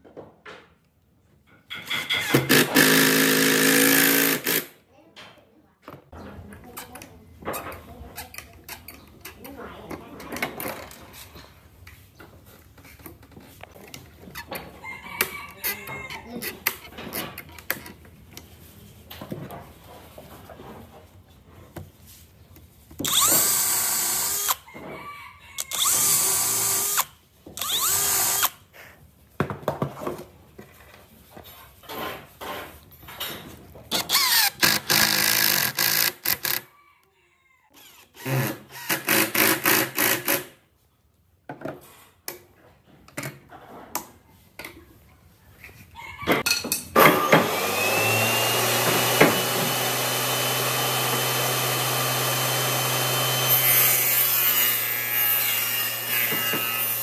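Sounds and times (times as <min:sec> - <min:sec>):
power drill driving screws: 0:02.0 - 0:04.7, 0:23.0 - 0:24.6, 0:25.7 - 0:28.6, 0:33.9 - 0:36.7, 0:37.8 - 0:40.4, 0:47.0 - 0:55.0
table saw motor running: 0:47.1 - 0:55.0.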